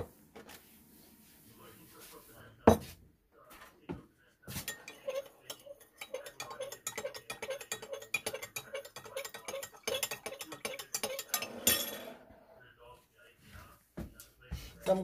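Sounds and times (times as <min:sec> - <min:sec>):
metal spoon clinking against glass: 0:04.5 - 0:12.0.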